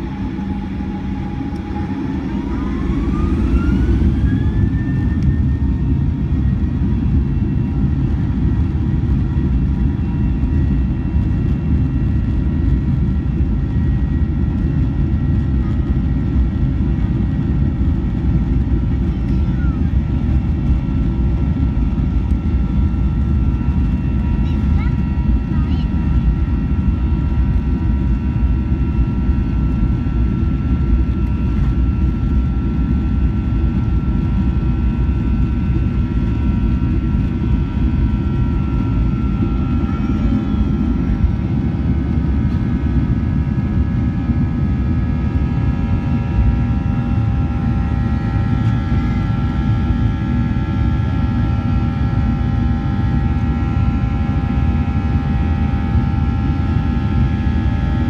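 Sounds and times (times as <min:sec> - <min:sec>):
high whining engine tones: 0:00.0 - 0:07.5
jet engine roar: 0:00.0 - 0:58.0.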